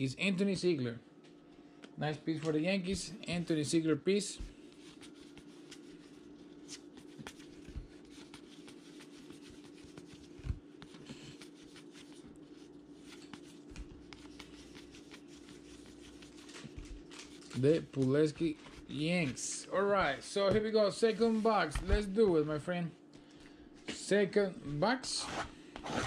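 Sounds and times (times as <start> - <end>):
steady low hum: 0.0 - 26.0
cards rustling and flicking: 2.3 - 22.5.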